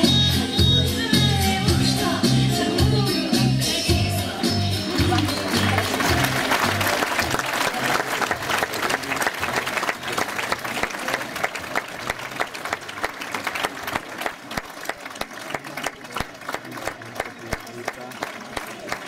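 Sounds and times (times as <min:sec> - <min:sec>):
audience applauding: 0:04.8 - 0:19.0.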